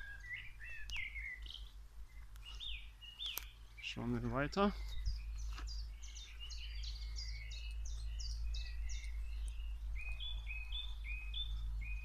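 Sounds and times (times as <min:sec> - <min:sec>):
songbirds chirping: 0:00.0 - 0:12.0
steady low rumble: 0:04.8 - 0:12.0.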